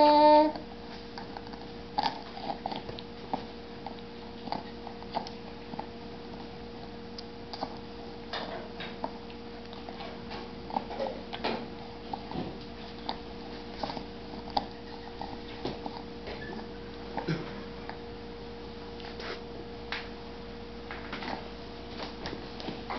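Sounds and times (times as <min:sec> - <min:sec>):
baby's voice: 0:00.0 - 0:00.6
faint hum: 0:00.0 - 0:22.9.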